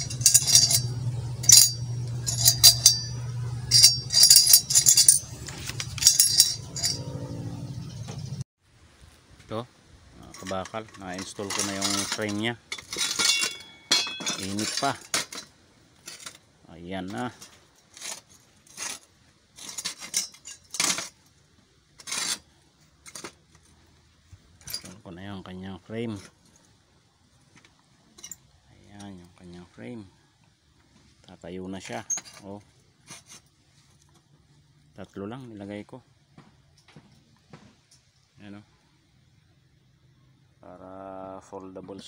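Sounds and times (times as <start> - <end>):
metal parts clanking: 0.0 - 7.3, 10.2 - 16.4, 17.0 - 21.4, 22.0 - 23.7, 24.6 - 25.1, 28.0 - 29.1, 31.8 - 33.4
low hum: 0.0 - 8.4.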